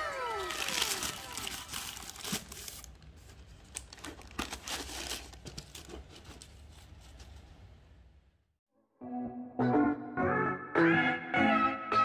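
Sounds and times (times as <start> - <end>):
tissue paper crinkling and rustling: 0.1 - 7.2.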